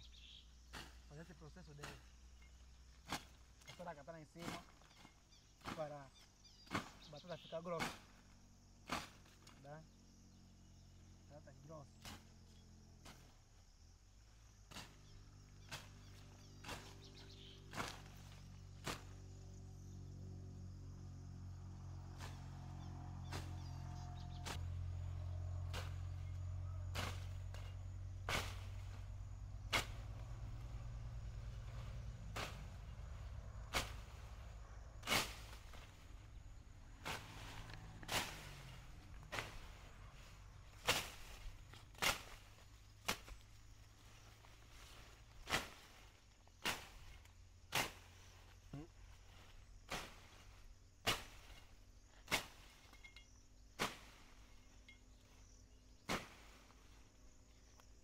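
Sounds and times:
hand hoe chopping into soil: 0:00.7 - 0:01.2, 0:01.8 - 0:09.6, 0:12.0 - 0:13.4, 0:14.6 - 0:19.2, 0:23.3 - 0:24.8, 0:25.6 - 0:34.4, 0:35.0 - 0:36.2, 0:37.0 - 0:54.8, 0:56.0 - 0:56.7.

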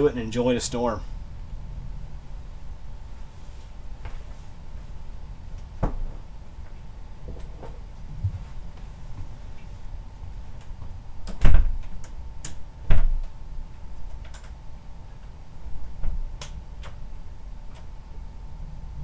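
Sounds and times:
low rumble: 0:00.0 - 0:11.2
faint hum: 0:00.0 - 0:19.0.

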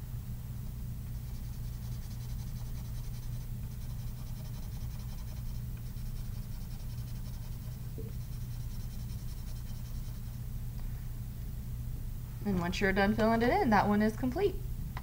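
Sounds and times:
steady low hum: 0:00.0 - 0:15.0
pencil scratching on paper: 0:01.1 - 0:10.4.

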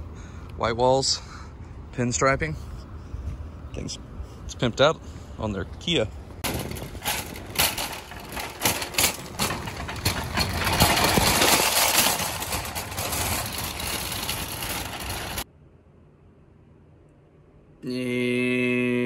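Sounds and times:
shopping cart rattling on asphalt: 0:06.4 - 0:15.4.

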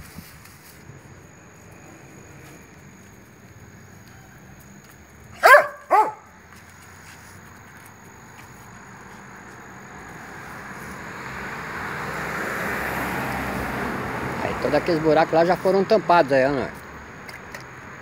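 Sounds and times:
passing vehicle hiss: 0:00.0 - 0:05.4, 0:06.1 - 0:18.0
dog barking: 0:05.4 - 0:06.3.

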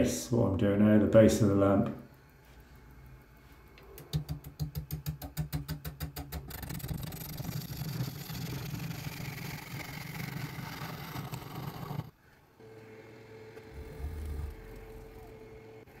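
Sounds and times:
turning tool knocking on wood: 0:04.0 - 0:06.5
turning tool cutting wood: 0:06.2 - 0:12.2
lathe hum: 0:07.1 - 0:16.0.

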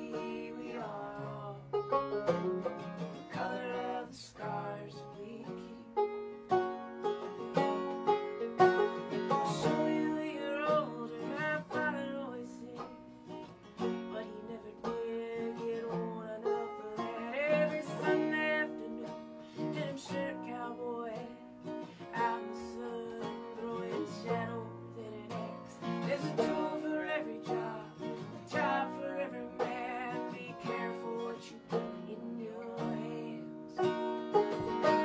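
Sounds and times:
person singing: 0:00.0 - 0:01.8, 0:03.2 - 0:06.0, 0:09.3 - 0:13.0, 0:14.0 - 0:35.0
acoustic guitar strumming: 0:00.0 - 0:35.0
banjo picking: 0:00.0 - 0:35.0.

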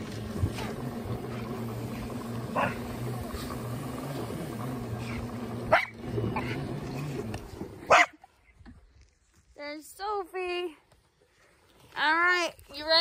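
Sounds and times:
four-wheeler engine running: 0:00.0 - 0:08.2.

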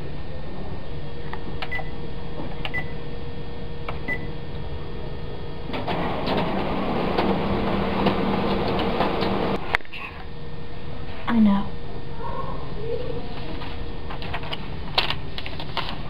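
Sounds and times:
copier whirring hum: 0:00.0 - 0:16.0.

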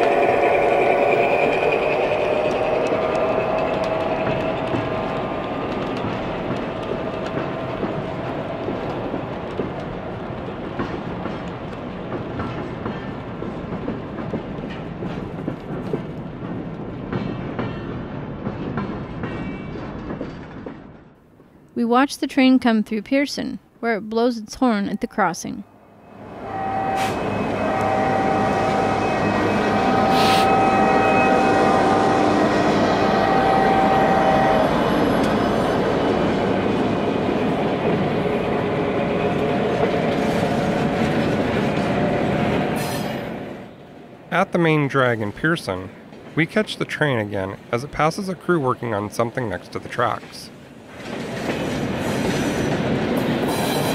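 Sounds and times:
model train cars rumbling: 0:00.0 - 0:17.2
freight cars rolling on track: 0:00.0 - 0:21.2, 0:26.1 - 0:53.9.

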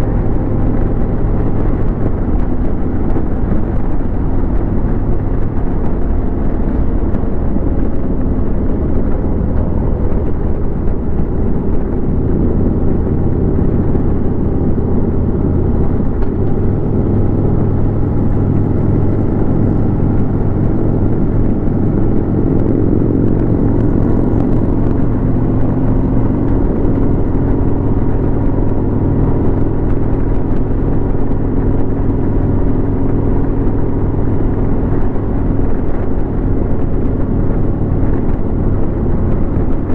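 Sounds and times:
motorcycle engine cruising: 0:00.0 - 0:39.9
wind rushing past microphone: 0:00.0 - 0:39.9.

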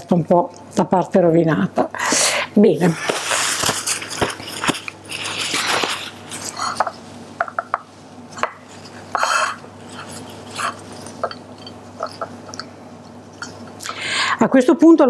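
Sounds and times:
paper towel wiping a plate: 0:02.8 - 0:07.2.

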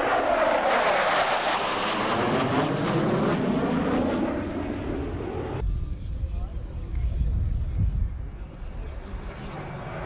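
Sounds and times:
fighter jets roaring past: 0:00.0 - 0:05.6.

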